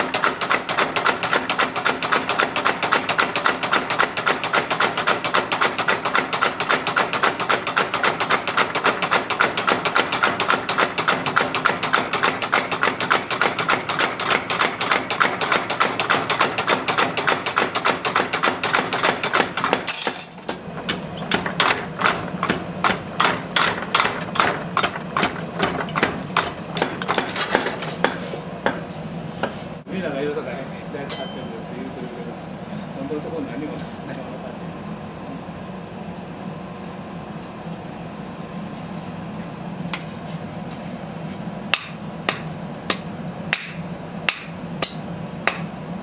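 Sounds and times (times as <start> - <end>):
power hammer pounding steel: 0.0 - 28.9, 41.7 - 45.7.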